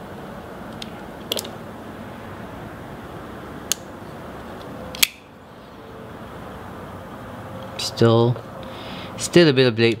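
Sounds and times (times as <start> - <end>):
steady background hiss: 0.0 - 10.0
folding knife metallic clicks: 4.9 - 5.3.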